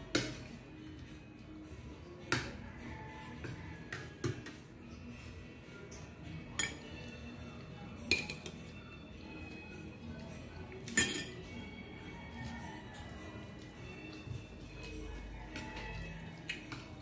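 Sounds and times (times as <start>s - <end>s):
faint background music: 0.0s - 17.0s
cutlery clinking on a plate: 6.5s - 7.0s, 8.1s - 8.7s, 10.8s - 11.6s.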